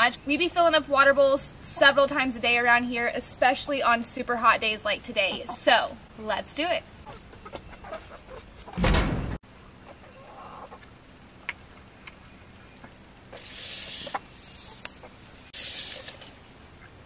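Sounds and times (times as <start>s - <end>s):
hens clucking softly: 6.9s - 8.8s, 9.8s - 11.6s, 13.3s - 15.3s
rustling hiss: 13.2s - 16.9s.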